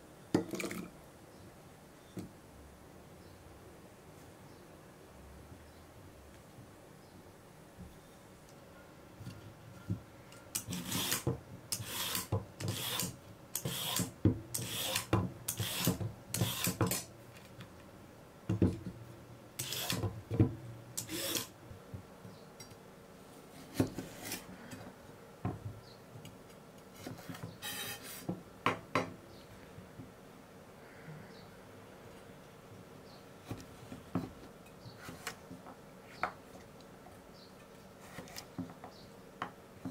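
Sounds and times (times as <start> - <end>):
peeler scraping carrot: 10.6 - 17.0.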